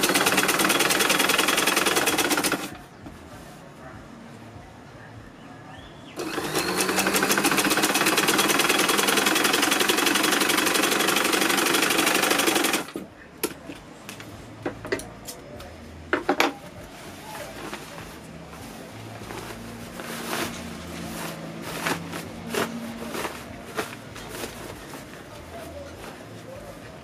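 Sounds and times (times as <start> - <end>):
sewing machine stitching: 0.0 - 2.7, 6.2 - 13.0.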